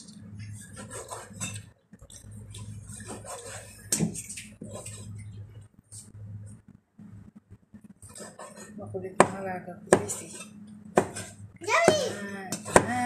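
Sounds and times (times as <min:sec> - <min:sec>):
low hum: 0:01.6 - 0:11.6.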